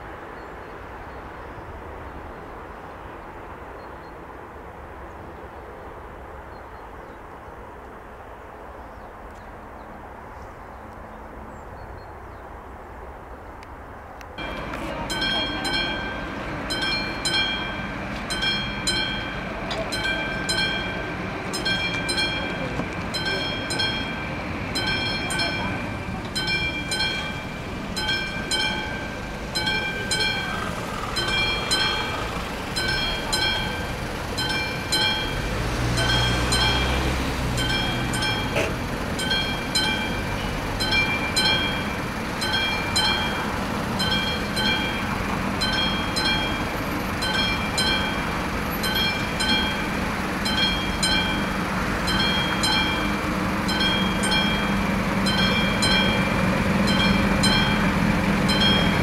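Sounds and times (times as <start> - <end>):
low engine rumble: 13.5 - 59.0
level crossing warning bell: 14.4 - 59.0.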